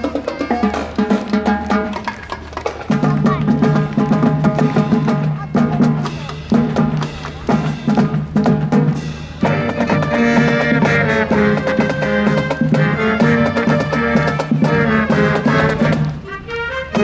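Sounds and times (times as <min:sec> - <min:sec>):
marching band drums: 0:00.0 - 0:17.0
wind instruments holding chords: 0:02.9 - 0:17.0
brass section playing: 0:07.5 - 0:17.0.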